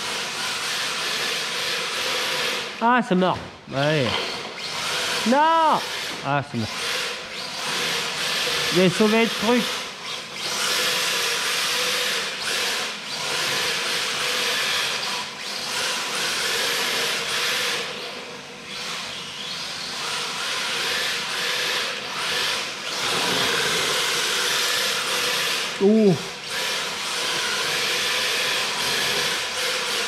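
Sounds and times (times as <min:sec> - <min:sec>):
tyres scrubbing across tiles: 0:22.9 - 0:25.2.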